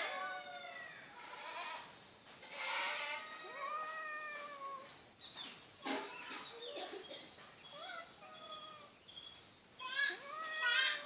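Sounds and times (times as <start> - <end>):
cat yowling: 0.0 - 1.4, 2.6 - 4.9, 10.0 - 11.0.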